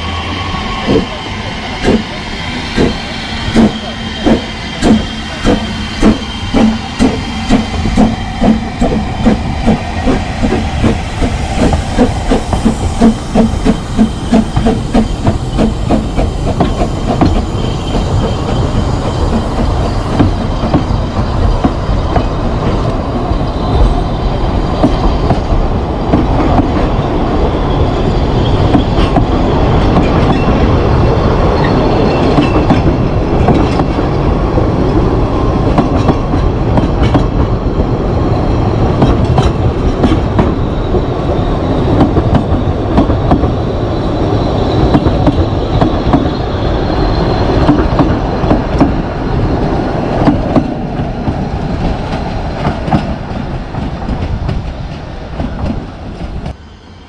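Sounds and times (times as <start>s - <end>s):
steam locomotive exhaust beats: 0.0s - 23.0s.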